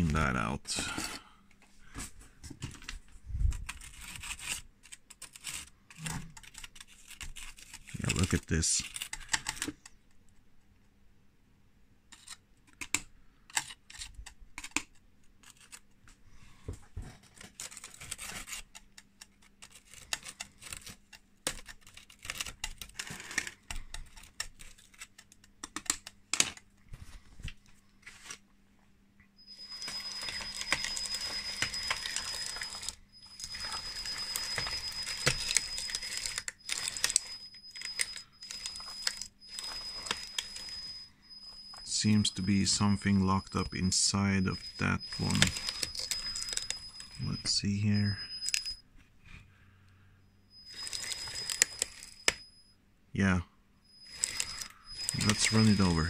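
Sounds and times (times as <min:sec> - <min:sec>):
screwdriver scraping plastic links: 0:02.6 - 0:10.0, 0:12.1 - 0:16.0, 0:17.2 - 0:26.6, 0:29.4 - 0:48.8, 0:50.5 - 0:52.6, 0:53.9 - 0:56.0
electric track drive whining: 0:29.4 - 0:48.8, 0:53.9 - 0:56.0.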